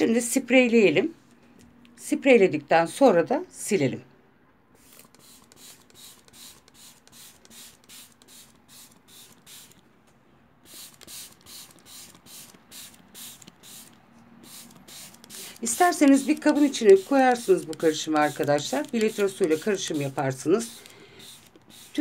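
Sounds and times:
spray bottle hissing: 4.8 - 9.8, 10.6 - 22.0.

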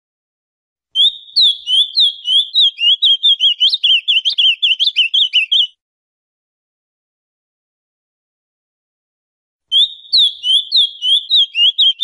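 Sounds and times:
bird singing whistled notes: 1.0 - 5.8, 9.7 - 12.0.

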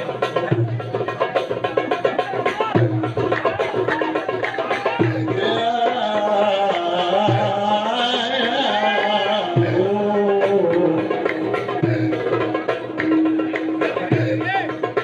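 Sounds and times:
man chanting: 4.6 - 15.0.

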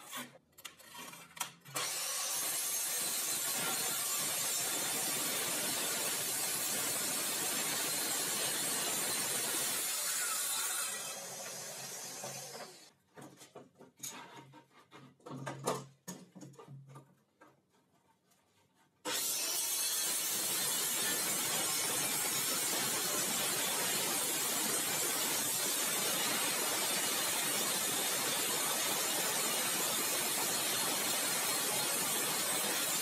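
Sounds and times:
circular saw cutting chipboard: 0.0 - 12.9, 19.0 - 33.0
boards and clamp clattering: 13.0 - 18.9.

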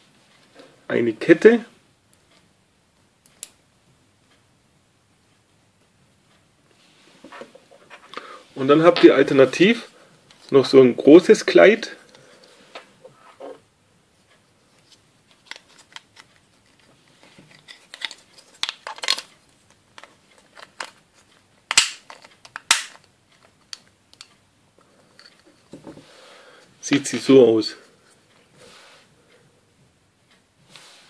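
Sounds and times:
plastic toy parts clicking and rubbing: 14.8 - 24.4.

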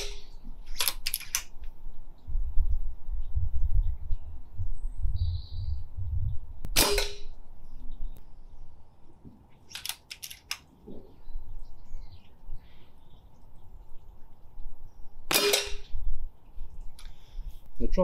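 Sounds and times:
silenced air rifle shot: 0.0 - 1.5, 6.7 - 7.4, 15.3 - 16.1
wind buffeting microphone: 0.0 - 9.3, 10.8 - 18.0
quick clicks: 9.7 - 10.7.

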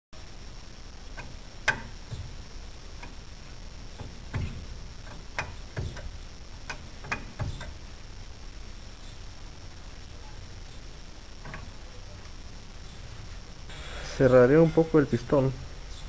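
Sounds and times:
sharp clicks and light knocks: 1.1 - 7.8, 11.4 - 12.4.

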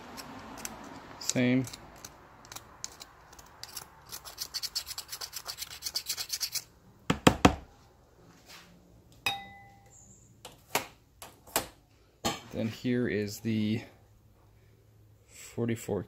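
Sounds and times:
blade scraping carbon: 0.0 - 6.7.

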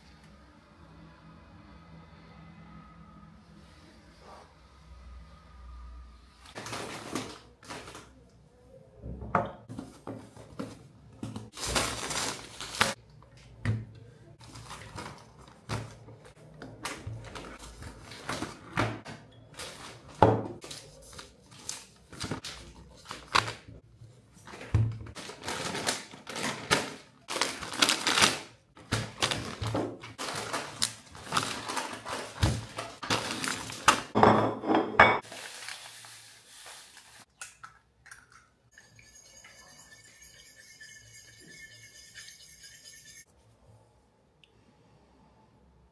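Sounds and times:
packaging rustling: 11.5 - 13.0, 25.2 - 34.1, 35.2 - 37.2
ceramic plates clattering: 34.1 - 35.2.

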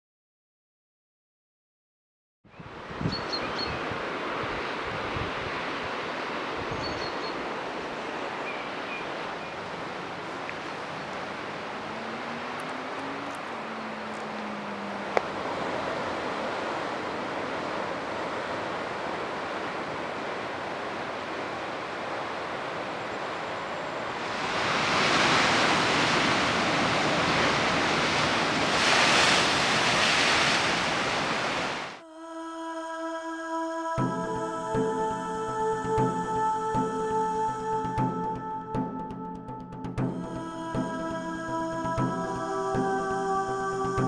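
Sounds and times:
surf washing against rocks: 9.1 - 23.1, 24.0 - 32.0.

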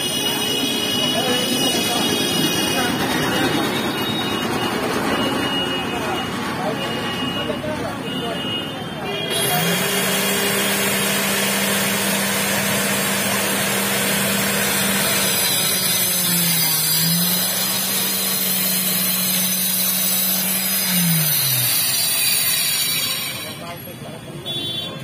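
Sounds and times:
motor humming: 9.3 - 23.5.

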